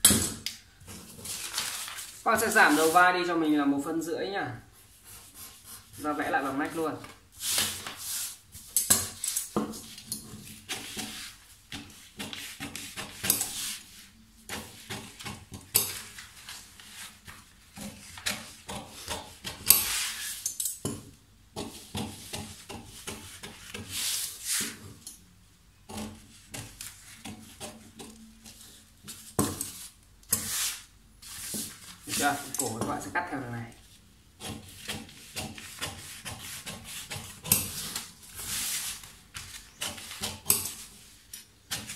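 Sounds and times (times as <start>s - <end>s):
stiff paper rustling: 0.8s - 3.2s.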